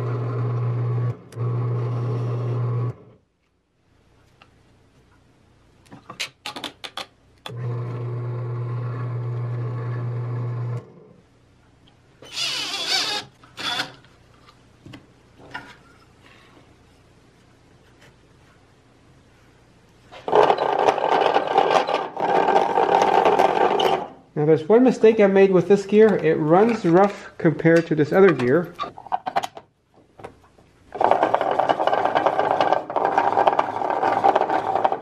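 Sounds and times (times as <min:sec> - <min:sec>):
drill press motor humming: 0:00.0 - 0:03.1, 0:07.5 - 0:11.0.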